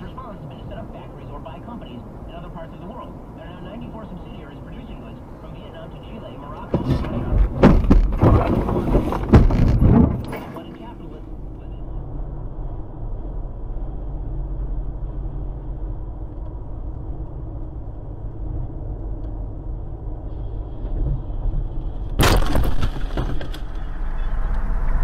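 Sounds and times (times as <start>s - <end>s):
car road and engine noise: 0.0s - 25.0s
windscreen smashing: 6.7s - 10.6s, 22.2s - 23.9s.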